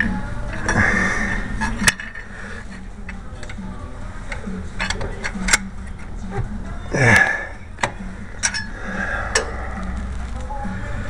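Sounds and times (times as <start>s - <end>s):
steady low hum: 0.0s - 11.0s
hand tools clinking on metal: 8.4s - 9.5s.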